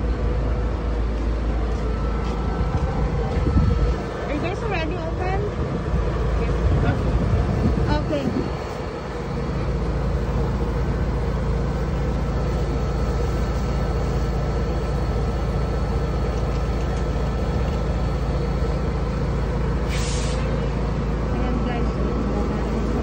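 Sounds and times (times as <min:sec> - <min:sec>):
machinery humming: 0:00.0 - 0:23.0.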